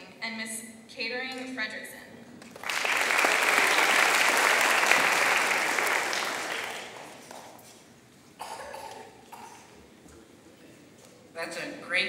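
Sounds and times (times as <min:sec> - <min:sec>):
audience applauding: 0:02.4 - 0:07.6.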